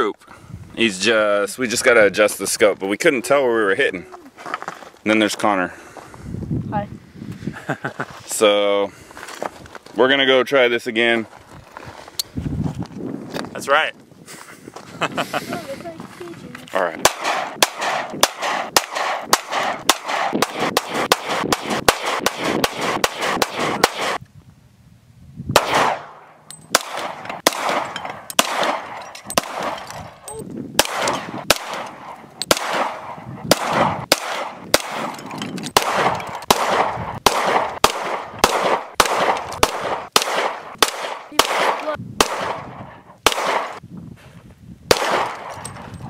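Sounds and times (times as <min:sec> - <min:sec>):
semi-automatic gunshots with echo: 0:17.0 - 0:24.2, 0:25.6 - 0:29.8, 0:30.8 - 0:35.1, 0:35.8 - 0:43.8, 0:44.9 - 0:45.6.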